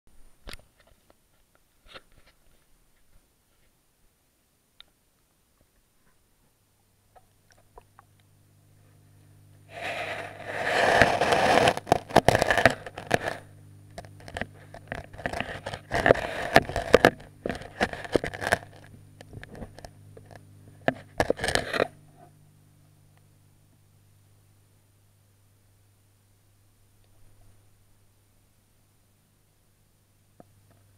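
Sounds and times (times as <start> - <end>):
low steady hum: 0.1 - 30.9
camera scraping and knocking: 9.7 - 22.0.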